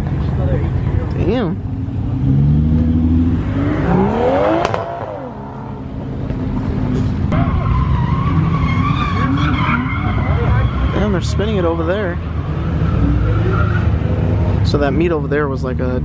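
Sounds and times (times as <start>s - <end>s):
car engine revving hard: 2.0s - 6.2s.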